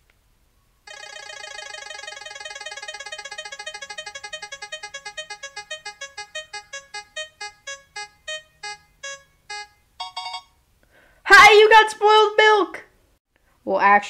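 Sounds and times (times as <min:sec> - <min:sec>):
short electronic beeps slowing: 0:00.9 - 0:10.5.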